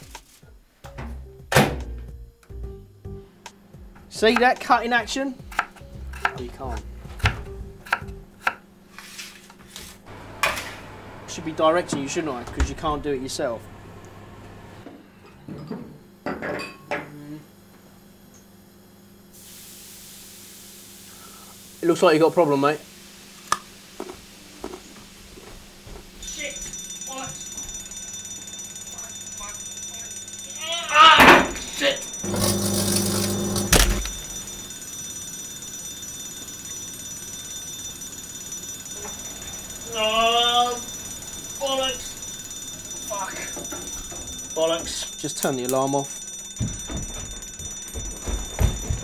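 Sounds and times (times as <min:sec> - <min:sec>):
microwave oven hiss: 0:06.9 - 0:43.8
faint high whine: 0:28.6 - 0:49.0.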